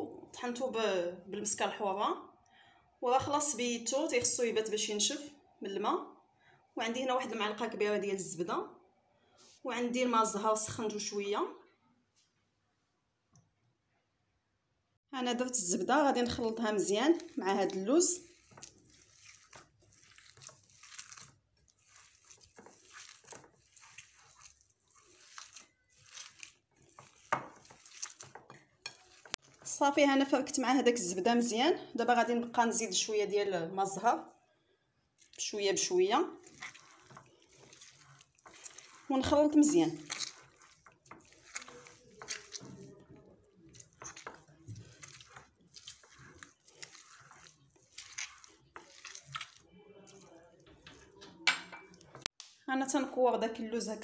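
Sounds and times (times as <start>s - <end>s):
hands kneading paste in bowl: 15.3s - 34.4s, 35.1s - 53.1s.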